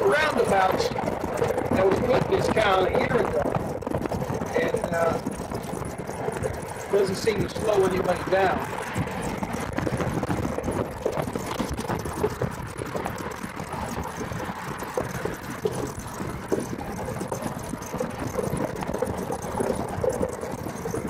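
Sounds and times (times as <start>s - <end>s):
golf cart rattling over gravel: 0.0s - 21.0s.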